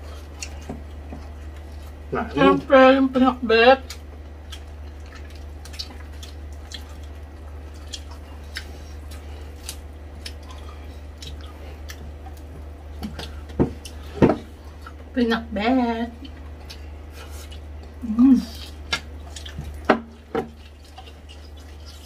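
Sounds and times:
chewing with wet mouth clicks: 0:00.1 - 0:02.0, 0:03.8 - 0:15.0, 0:16.2 - 0:22.0
loud mouth smacks: 0:18.6 - 0:19.7.

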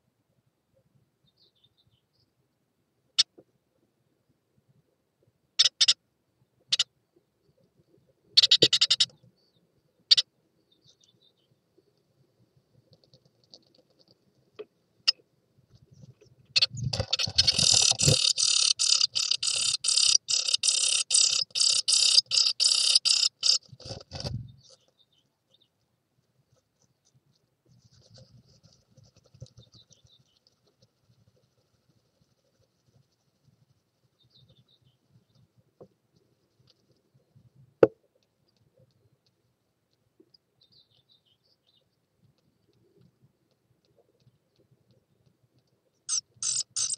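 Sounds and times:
nestlings begging calls: 0:16.6 - 0:24.3, 0:46.1 - 0:46.9.

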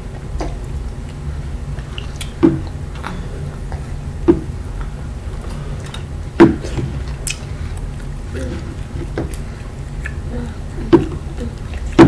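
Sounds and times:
steady low hum: 0:00.0 - 0:12.0
wet eating clicks and smacks: 0:00.1 - 0:12.0.

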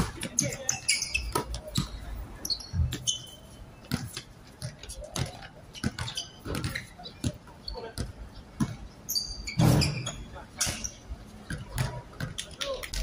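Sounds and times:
sneaker squeaks: 0:00.0 - 0:12.4
basketball bouncing on hard court: 0:03.8 - 0:07.4, 0:08.0 - 0:08.8, 0:11.5 - 0:12.4.

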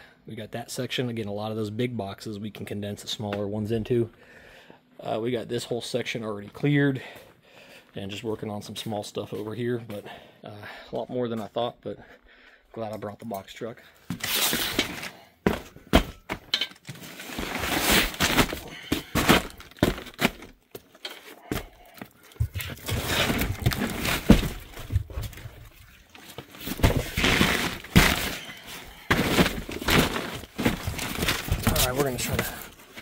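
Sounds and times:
cardboard scraping and rustling: 0:14.1 - 0:16.1, 0:16.9 - 0:20.5, 0:22.4 - 0:33.0
boxes knocking and thumping: 0:14.1 - 0:20.6, 0:21.4 - 0:25.8, 0:26.4 - 0:33.0.

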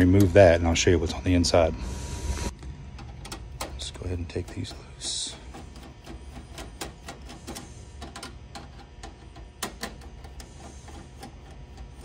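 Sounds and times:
screwdriver scrape: 0:04.4 - 0:12.0.

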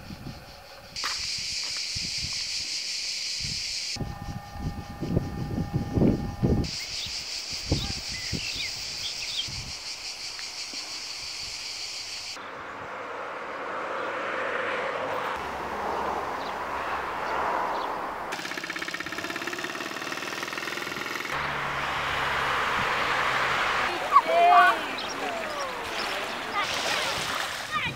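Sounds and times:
high steady buzz: 0:03.4 - 0:07.8
bird chirps: 0:06.7 - 0:10.1
walking tractor engine knocking: 0:18.3 - 0:21.4.

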